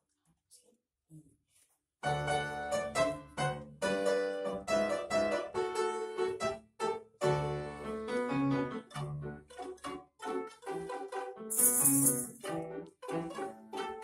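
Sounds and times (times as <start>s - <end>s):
upright piano: 2.1s - 9.5s
violin ensemble: 8.9s - 11.4s, 12.4s - 14.0s.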